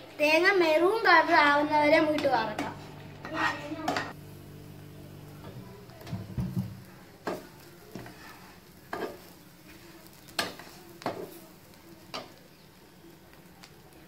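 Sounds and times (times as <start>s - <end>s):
faint sizzle: 0.0s - 14.0s
wooden spoon scraping a pan: 2.2s - 4.2s, 7.2s - 11.5s.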